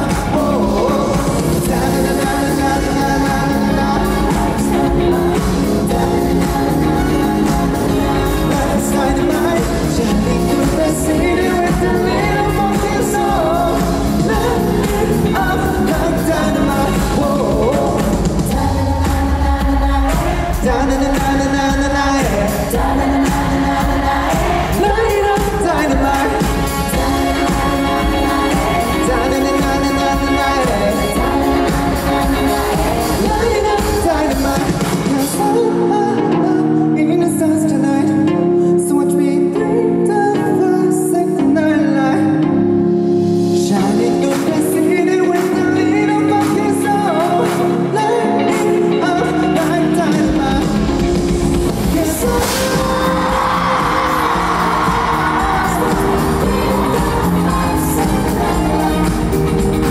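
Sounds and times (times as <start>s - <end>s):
live pop band: 0.0s - 59.9s.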